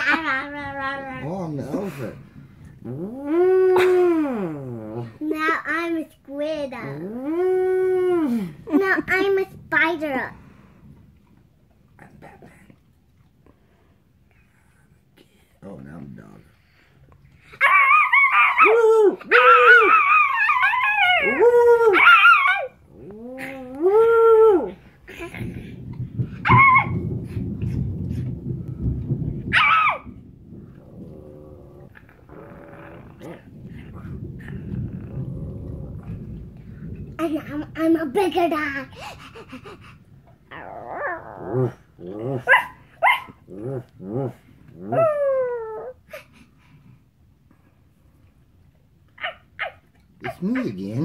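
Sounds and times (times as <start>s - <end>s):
person growling like a dog: 2.7s - 5.3s, 6.8s - 8.8s, 22.9s - 26.0s, 30.8s - 36.4s, 40.5s - 42.5s, 43.5s - 45.9s
person howling like a dog: 17.7s - 24.8s.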